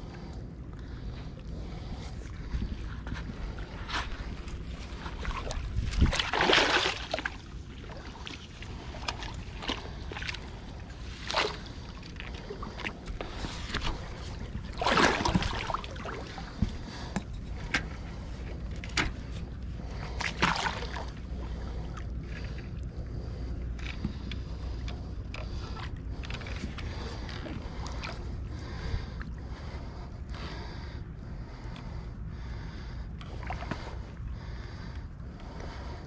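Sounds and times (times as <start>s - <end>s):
river water splashing: 5.1s - 10.5s, 14.7s - 16.4s.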